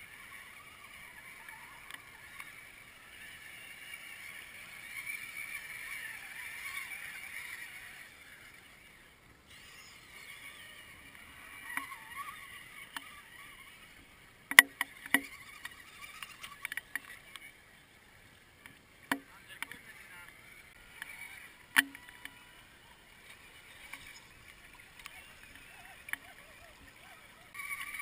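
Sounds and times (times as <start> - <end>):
electric motor whine: 19.1 - 28.0.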